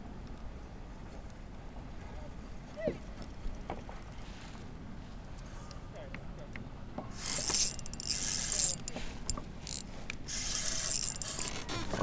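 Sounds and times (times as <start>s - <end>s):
fishing reel whirring and clicking: 7.2s - 12.0s.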